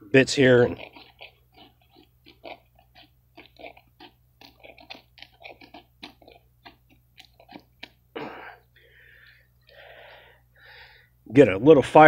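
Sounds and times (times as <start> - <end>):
dry wood crackling and snapping: 0.5 - 8.0.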